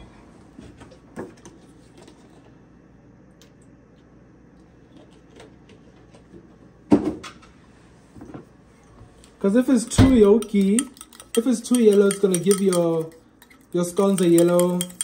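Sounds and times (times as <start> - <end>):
kitchen utensils clicking and tapping: 9.8 - 15.0.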